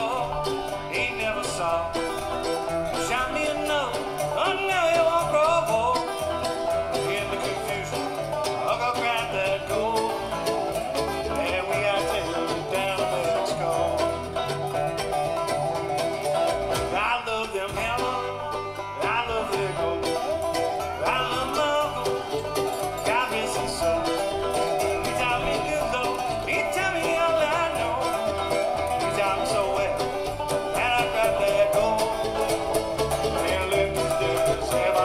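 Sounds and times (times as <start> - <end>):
acoustic guitar: 0.0 - 35.0
banjo: 0.0 - 35.0
mandolin: 0.0 - 35.0.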